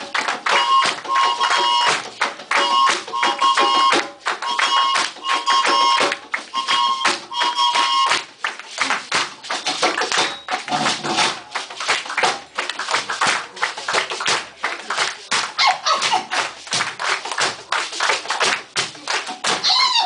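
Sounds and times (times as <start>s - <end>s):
hand drums playing fast: 0.0s - 8.4s
people clapping: 0.0s - 20.0s
high-pitched instrument notes: 0.4s - 8.3s.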